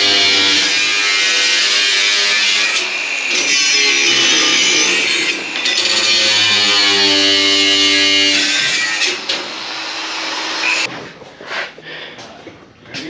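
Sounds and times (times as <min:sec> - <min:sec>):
grinder cutting metal sheet: 0:00.0 - 0:10.9.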